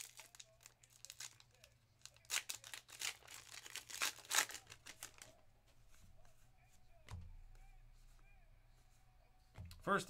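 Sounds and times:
wrapper tearing and crinkling: 0.0 - 5.4.

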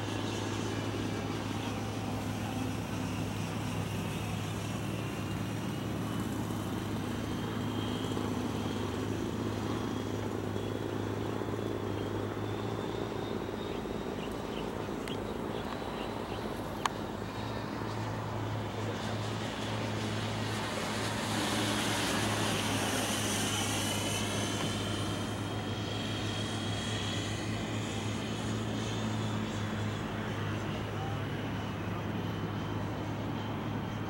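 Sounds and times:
model jet whine: 0.0 - 34.0
steady low hum: 0.0 - 34.0.

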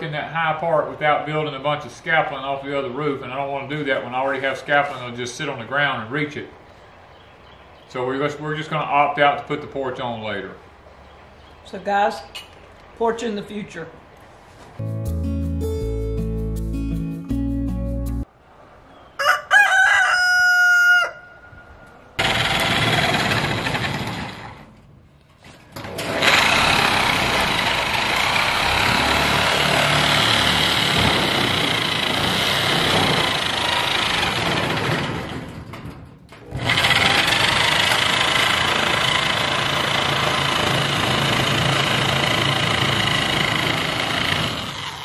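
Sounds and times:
rooster crowing: 19.0 - 21.8
power shears cutting sheet metal: 22.2 - 24.7, 25.8 - 35.6, 36.4 - 45.0.

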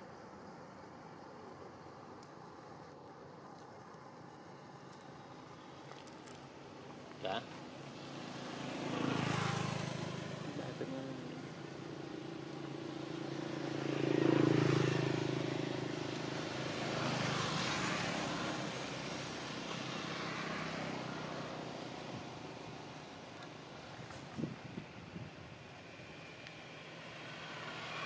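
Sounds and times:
vehicles passing by: 0.0 - 28.0.

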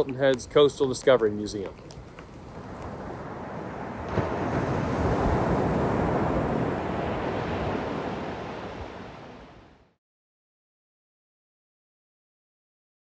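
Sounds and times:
ocean waves breaking on shore: 1.6 - 10.0.

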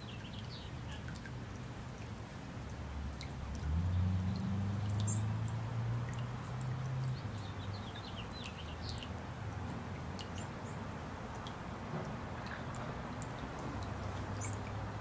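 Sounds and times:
fountain water splashing and dripping: 0.0 - 15.0.

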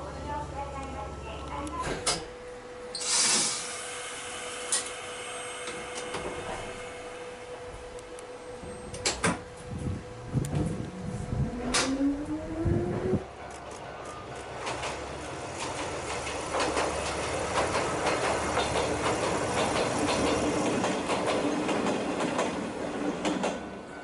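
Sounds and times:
train running noise rush: 2.0 - 24.0
train wheels clicking on rail joints: 5.6 - 6.8, 8.0 - 24.0.

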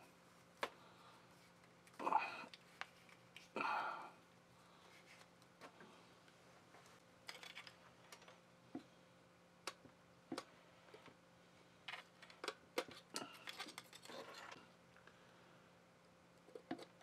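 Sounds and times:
rustling and scraping: 4.7 - 8.4, 11.8 - 14.8.

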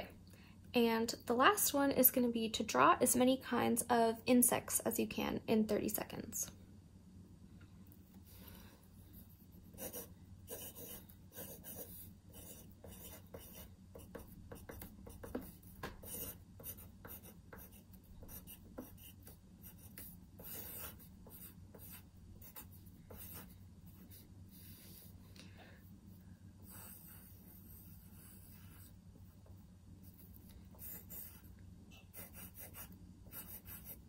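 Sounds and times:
low steady hum: 0.0 - 34.0
pencil scratching on paper: 9.2 - 25.2, 26.6 - 34.0.

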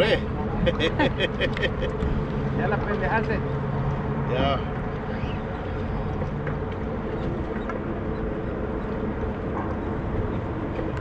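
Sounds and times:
faint engine hum: 0.0 - 11.0
wind buffeting microphone: 0.0 - 11.0.

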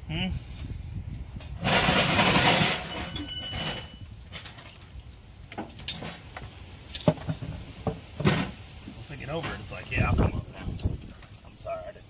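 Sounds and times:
high ringing tone: 2.8 - 4.2.

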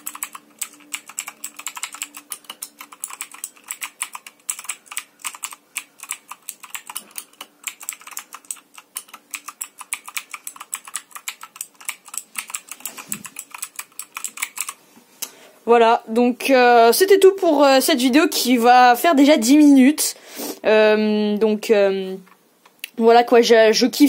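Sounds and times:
clicky mechanical keyboard typing: 0.0 - 14.8.

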